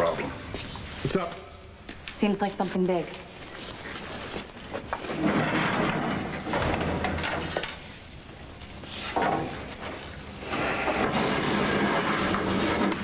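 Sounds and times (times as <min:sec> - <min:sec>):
keys and metal clinking: 0:02.2 - 0:10.4.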